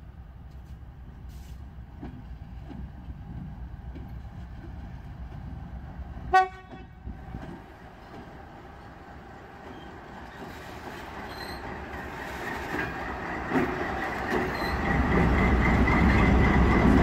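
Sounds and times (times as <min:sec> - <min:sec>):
diesel locomotive engine rumble: 0:00.0 - 0:17.0
short train horn toot: 0:06.3 - 0:07.0.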